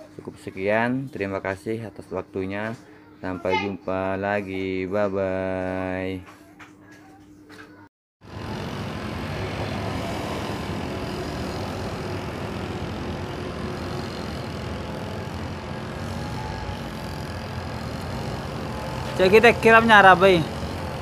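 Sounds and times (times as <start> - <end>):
model plane motor whine: 8.2 - 21.0.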